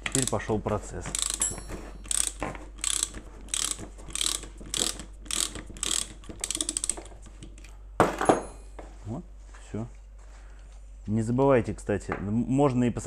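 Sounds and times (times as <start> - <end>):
ratchet-like metal clicking: 0.0 - 0.5, 1.1 - 7.2.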